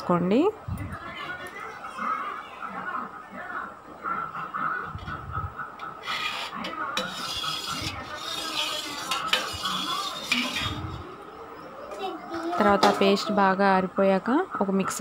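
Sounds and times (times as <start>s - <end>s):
spoon scraping steel vessel: 5.8s - 11.2s.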